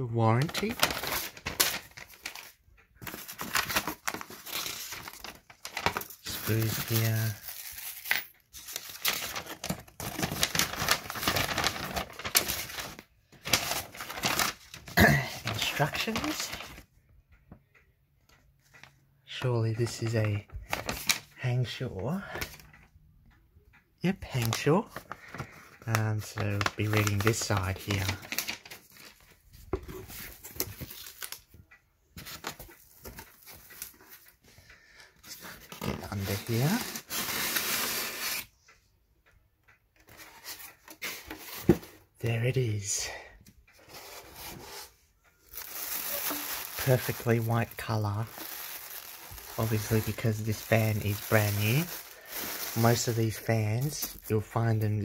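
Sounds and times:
paper and cardboard rustling: 0:00.4 - 0:16.8, 0:24.4 - 0:31.4, 0:35.2 - 0:38.4, 0:43.8 - 0:55.0.

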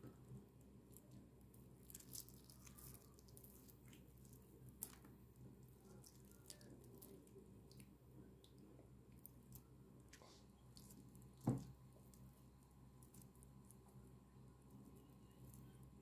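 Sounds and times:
chicken meat being torn: 0:01.8 - 0:05.1.

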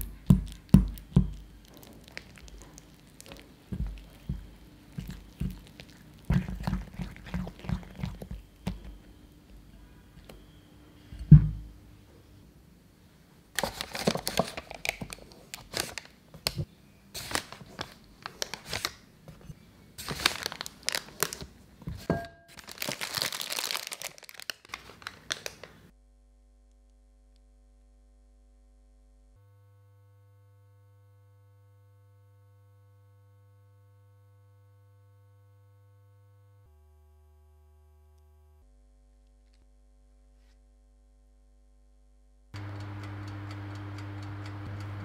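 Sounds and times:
plastic bag crinkling: 0:00.5 - 0:08.4, 0:13.6 - 0:16.6, 0:17.2 - 0:21.6, 0:22.6 - 0:25.9.

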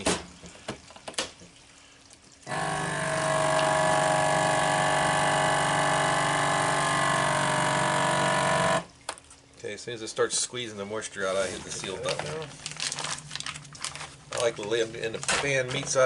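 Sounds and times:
vacuum sealer pump humming: 0:02.4 - 0:09.0.

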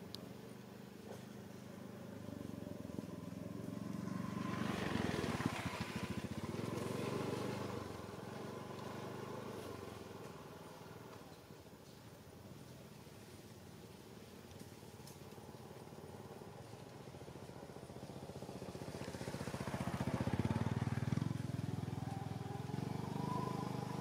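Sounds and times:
vehicle driving past: 0:01.1 - 0:11.3, 0:15.3 - 0:24.0.

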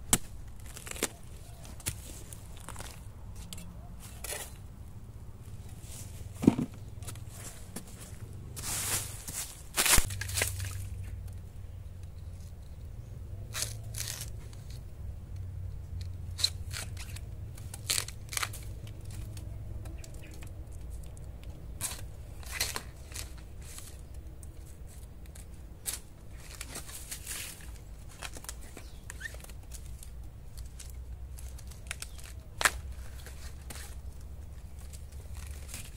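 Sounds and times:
dry leaves crackling: 0:00.0 - 0:04.6, 0:05.4 - 0:12.6, 0:13.5 - 0:14.8, 0:16.4 - 0:35.9
knife cutting bamboo: 0:00.1 - 0:04.6, 0:13.5 - 0:14.8, 0:16.0 - 0:20.5.

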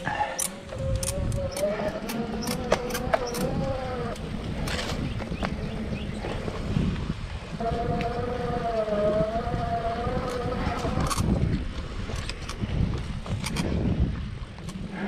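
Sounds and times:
bike rattles and clicks: 0:00.0 - 0:15.0
wind on microphone: 0:00.0 - 0:15.0
bike tyres rumbling on sand: 0:00.6 - 0:15.0.

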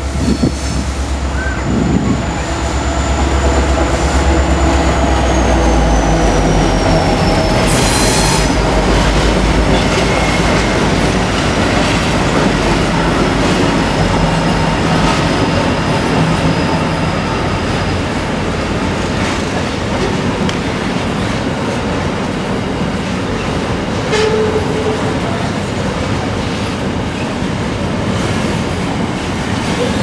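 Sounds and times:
diesel locomotive engines rumbling: 0:00.0 - 0:30.0
high wheel squeal: 0:00.2 - 0:08.8.

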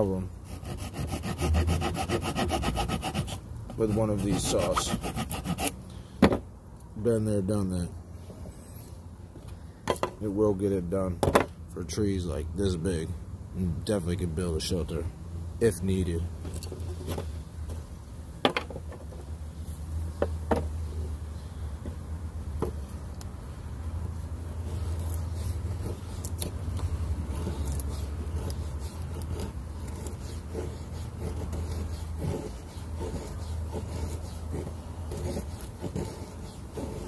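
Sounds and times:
saw cutting wooden stick: 0:00.4 - 0:05.8, 0:24.6 - 0:37.0.

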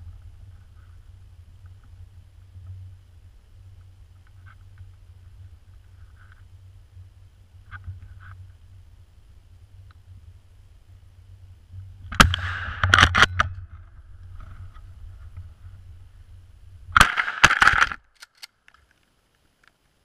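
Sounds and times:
shotgun blasts: 0:12.1 - 0:13.3, 0:16.9 - 0:18.0.

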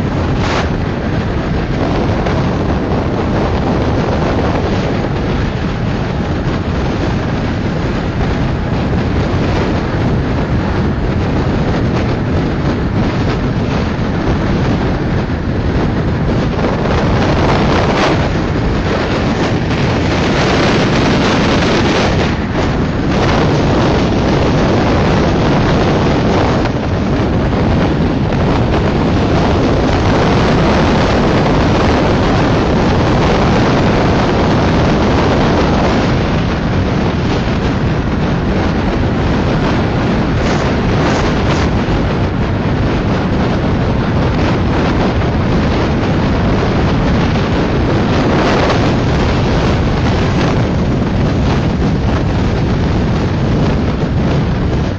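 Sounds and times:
train rumbling on track: 0:00.0 - 0:54.9
wind buffeting microphone: 0:00.0 - 0:54.9.

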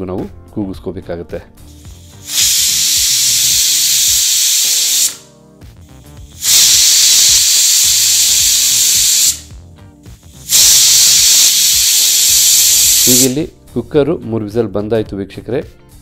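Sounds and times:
pressure cooker whistling: 0:01.8 - 0:05.3, 0:05.9 - 0:09.5, 0:10.3 - 0:13.4.

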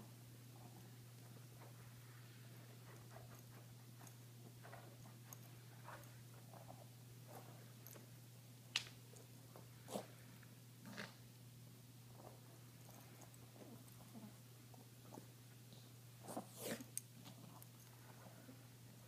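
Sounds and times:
dog snuffling and rubbing rug: 0:09.8 - 0:10.2, 0:16.2 - 0:17.6.

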